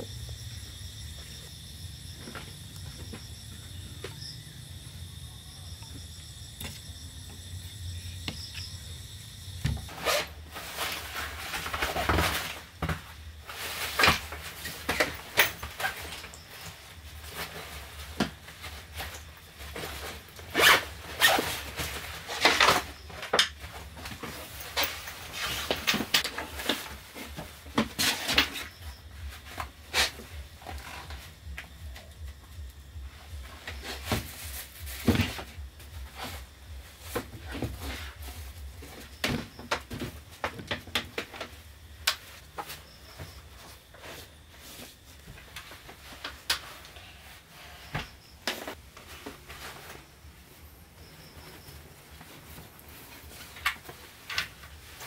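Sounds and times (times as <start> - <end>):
night insects chirring: 0.0 - 55.0
clothing and bag rustling: 9.8 - 55.0.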